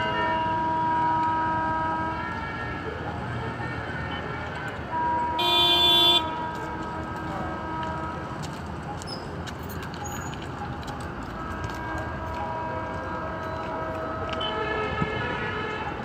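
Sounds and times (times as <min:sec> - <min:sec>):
locomotive horn: 0:00.0 - 0:02.9, 0:03.5 - 0:08.5, 0:11.4 - 0:16.0.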